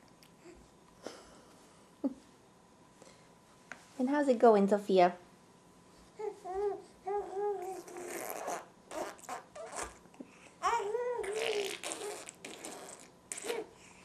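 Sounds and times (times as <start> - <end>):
baby babbling: 6.2 - 10.0, 10.6 - 13.7
baby blowing raspberries: 7.6 - 10.0, 10.6 - 14.0.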